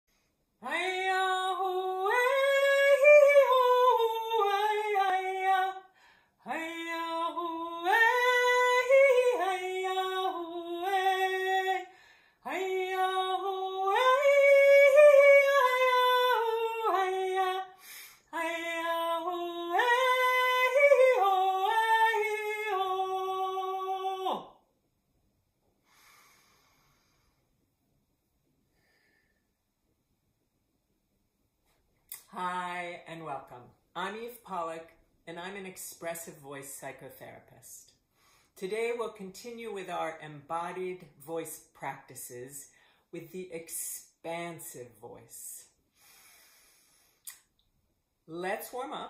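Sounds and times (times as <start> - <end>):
woman singing unaccompanied: 0.6 - 24.6.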